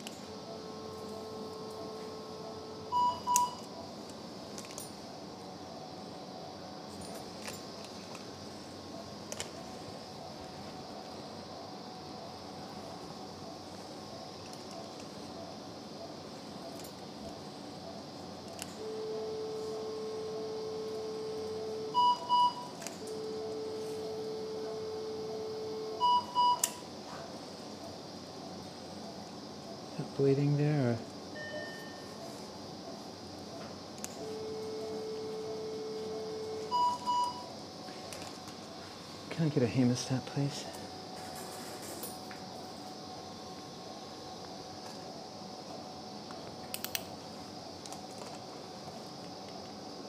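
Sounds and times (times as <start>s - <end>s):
low equipment hum: 0.0s - 50.0s
short high-pitched beeps: 2.9s - 3.7s, 21.9s - 22.8s, 35.0s - 37.5s.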